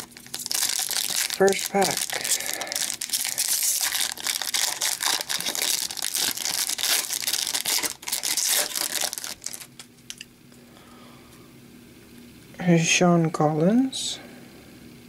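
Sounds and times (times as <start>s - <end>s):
wrapper tearing and crinkling: 0.0s - 10.2s.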